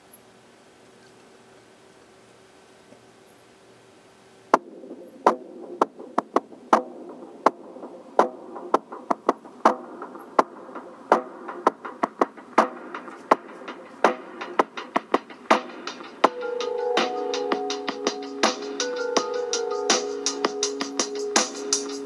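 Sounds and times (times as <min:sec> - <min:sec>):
music with drum machine hits: 0:04.5 - 0:22.0.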